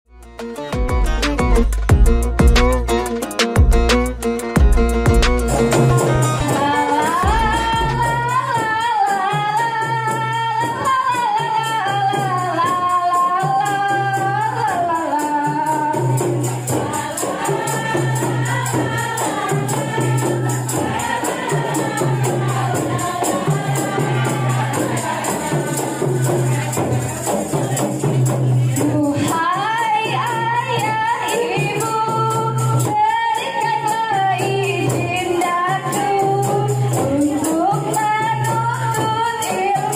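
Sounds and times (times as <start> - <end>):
steady low beat: 0.2 - 6.5, 7.2 - 8.3
tambourines shaken and struck: 0.2 - 39.9
lead voice on a microphone: 6.0 - 8.5
women singing: 6.4 - 39.9.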